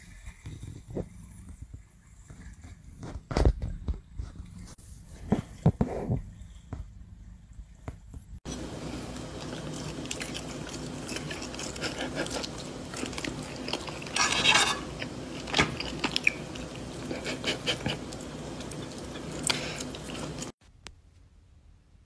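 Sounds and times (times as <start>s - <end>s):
cat chewing food: 8.5s - 14.2s, 14.9s - 20.6s.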